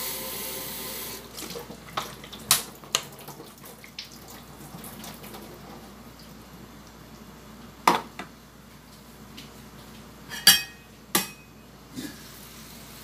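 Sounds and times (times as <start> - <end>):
metal wok lid clanking: 10.3 - 11.5.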